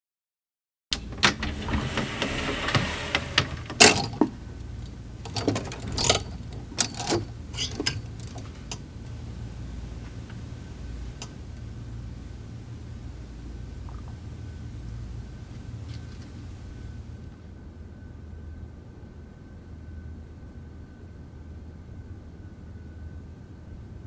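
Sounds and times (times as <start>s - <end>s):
low room hum: 0.9s - 24.0s.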